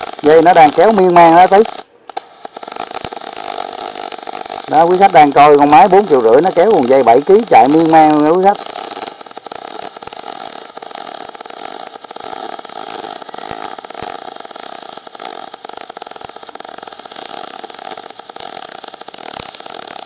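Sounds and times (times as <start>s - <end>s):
welding arc crackling hiss: 0.0s - 20.0s.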